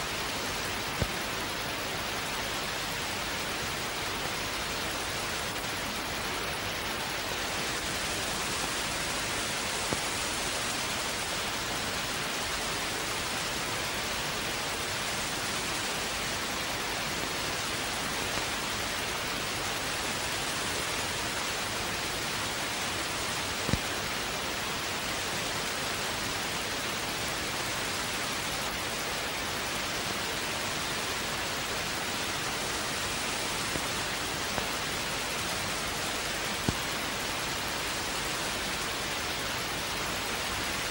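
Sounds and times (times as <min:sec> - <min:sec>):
television static hiss: 0:00.0 - 0:40.9.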